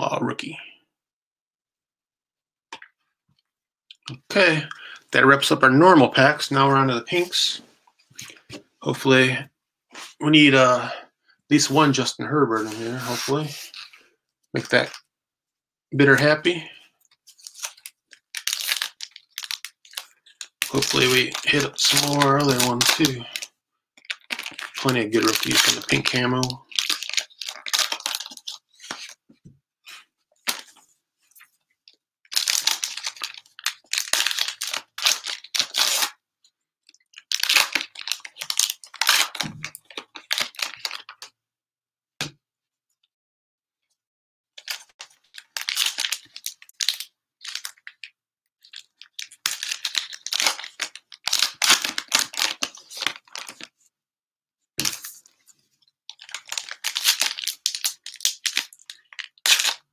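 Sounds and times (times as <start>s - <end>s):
wrappers tearing and crinkling: 17.3s - 29.2s, 32.3s - 36.2s, 37.1s - 41.2s, 44.6s - 53.7s, 56.1s - 59.9s.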